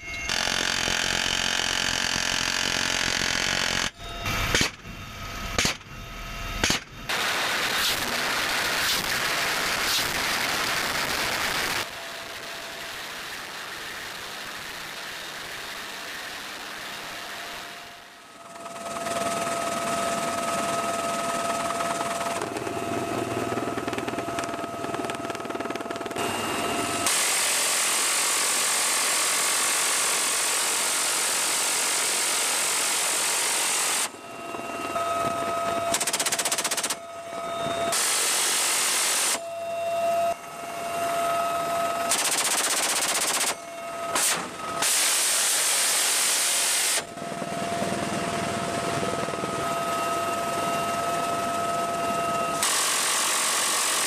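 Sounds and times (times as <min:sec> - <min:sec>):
helicopter cabin whine: 0:00.0 - 0:54.0
minigun firing bursts: 0:35.9 - 0:37.0, 0:42.1 - 0:43.6.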